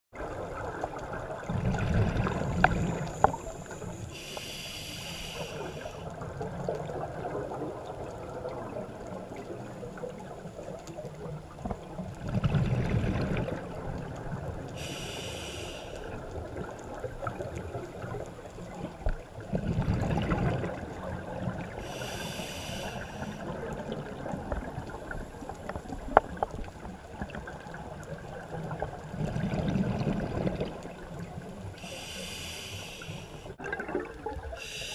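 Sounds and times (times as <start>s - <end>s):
bubbling exhaled air: 1.3s - 6.0s, 19.5s - 23.9s, 29.1s - 31.0s
hissing inhale through regulator: 2.2s - 6.1s, 14.7s - 16.2s, 21.8s - 23.6s, 31.8s - 33.6s, 34.5s - 34.9s.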